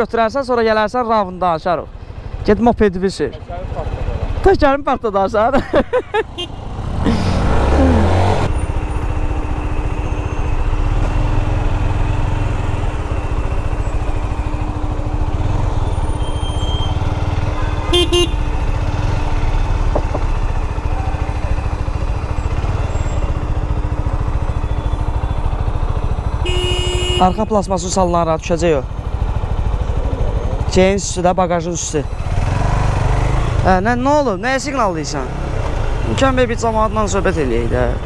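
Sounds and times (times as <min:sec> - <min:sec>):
motorcycle engine revving: 0:02.2 - 0:04.5, 0:06.1 - 0:38.0
motorcycle horn toot: 0:06.3 - 0:06.7, 0:15.8 - 0:18.7, 0:26.2 - 0:27.7.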